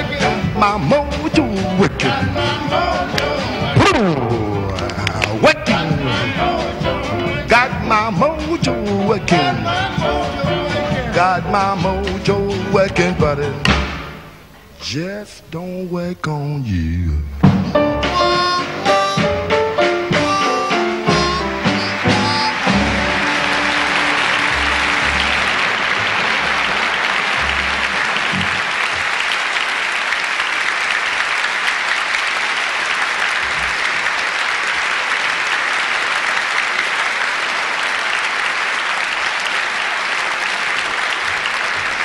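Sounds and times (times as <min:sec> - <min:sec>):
band's last notes: 0:00.0 - 0:08.1, 0:17.4 - 0:28.7
audience applauding: 0:01.3 - 0:07.6, 0:18.1 - 0:42.0.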